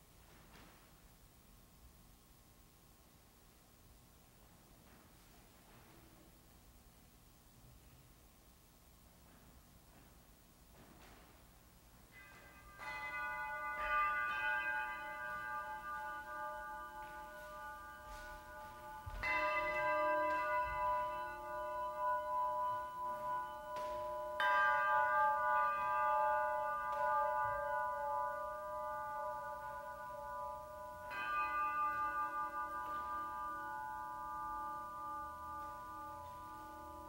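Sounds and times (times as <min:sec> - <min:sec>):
metal percussion bell-like tones: 0:12.1 - 0:37.0.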